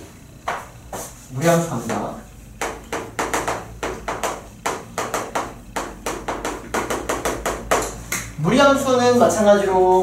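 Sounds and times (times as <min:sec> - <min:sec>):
chalk tapping on a blackboard: 0:00.4 - 0:08.4.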